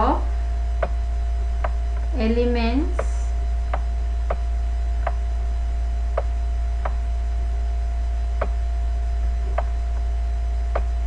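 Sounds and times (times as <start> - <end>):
low electrical hum: 0.0 - 11.0
stylus tapping on tablet screen: 0.8 - 1.0, 1.6 - 1.8, 3.0 - 5.2, 6.1 - 7.0, 8.4 - 8.6, 9.6 - 10.1, 10.7 - 11.0.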